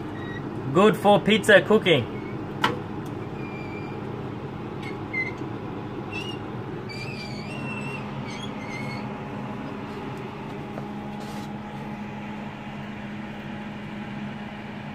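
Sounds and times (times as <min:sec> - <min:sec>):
conveyor belt squeaks: 0:00.0 - 0:00.5, 0:02.0 - 0:02.5, 0:03.2 - 0:04.1, 0:04.8 - 0:10.1
pizza oven hum: 0:00.0 - 0:14.9.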